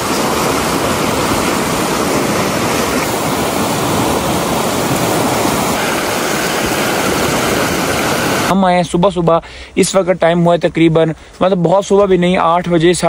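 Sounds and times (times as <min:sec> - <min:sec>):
river rushing over rapids: 0:00.0 - 0:08.6.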